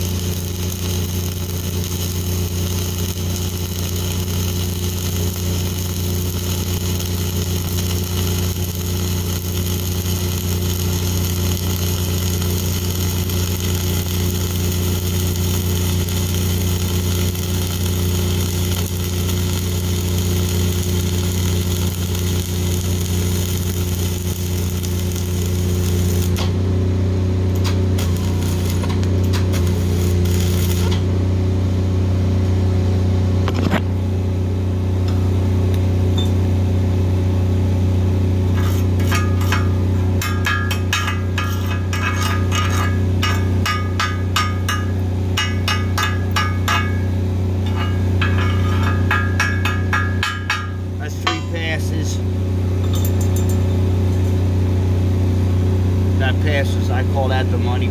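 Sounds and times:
crackling welding arc: 0.0 - 26.7, 27.4 - 31.2, 38.5 - 54.5
diesel welder engine drone: 0.0 - 57.9
chipping hammer tapping metal: 38.6 - 51.8.

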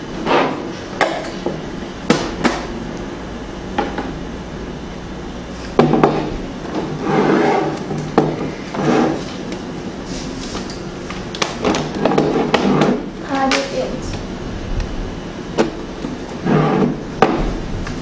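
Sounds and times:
rubbing scrape: 6.8 - 9.4, 16.4 - 17.1.

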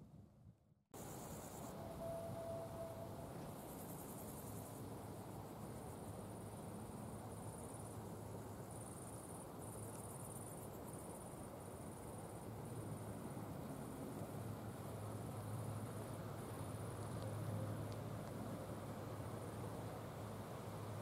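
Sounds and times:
insects buzzing: 1.0 - 17.6.

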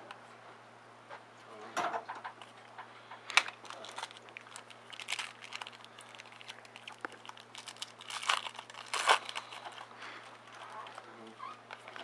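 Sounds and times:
foil wrapper crinkling and tearing: 3.3 - 12.0.

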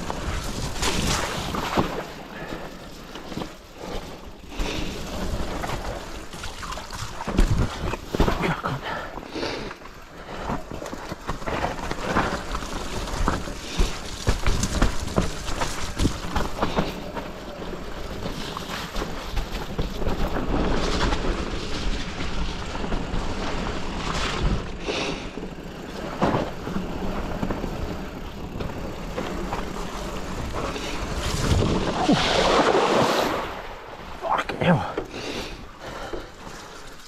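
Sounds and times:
bike knocks and rattles: 0.0 - 9.1, 9.8 - 32.0
bike tyres on dirt: 0.0 - 37.0
bike splashing through puddle: 4.0 - 8.5, 11.7 - 34.2.

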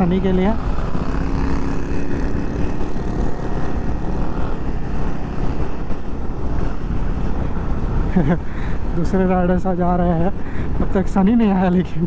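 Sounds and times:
motorcycle engine running: 0.0 - 7.9.

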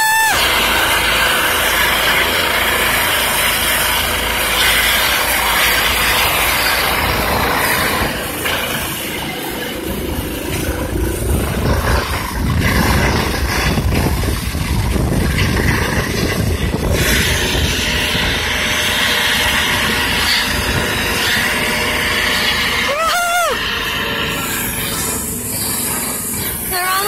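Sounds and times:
helicopter turbine and rotor noise: 0.0 - 27.0.

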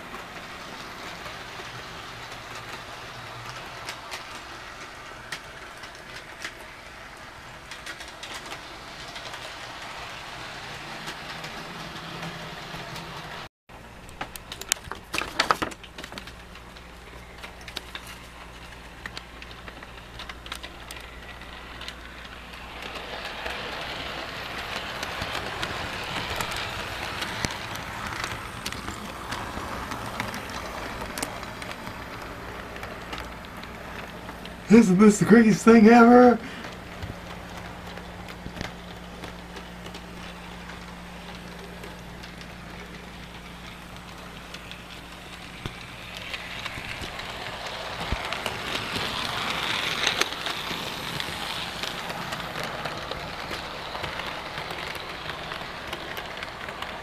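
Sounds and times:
wheels clicking on rails: 0.0 - 57.0
model train motor humming: 19.1 - 57.0.

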